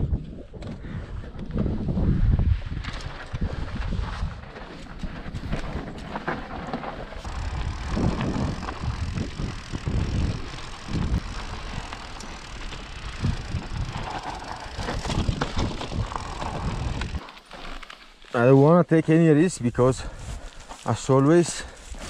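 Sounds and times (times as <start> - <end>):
bike rattling: 2.6 - 18.5
tyres crunching over stones: 4.4 - 18.6.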